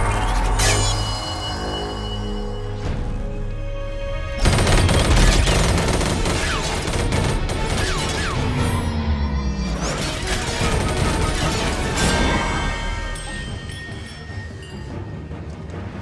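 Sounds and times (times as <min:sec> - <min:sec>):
film score music: 0:00.0 - 0:16.0.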